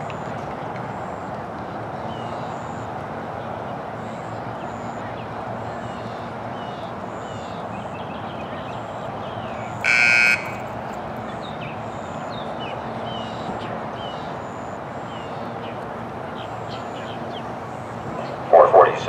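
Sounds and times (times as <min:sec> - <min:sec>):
start buzzer: 0:09.8 - 0:10.9.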